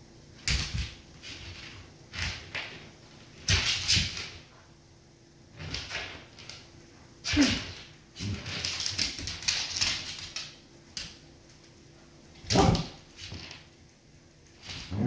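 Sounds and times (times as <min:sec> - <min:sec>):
dog claws scuffling on wood floor: 0:00.4 - 0:04.5, 0:07.3 - 0:11.8, 0:12.4 - 0:13.8.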